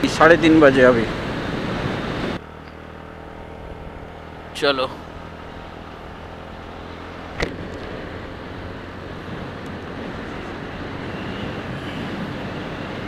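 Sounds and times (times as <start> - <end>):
road and wind noise: 0.0 - 13.0
scooter engine running: 2.4 - 13.0
sharp knock: 7.4 - 7.7.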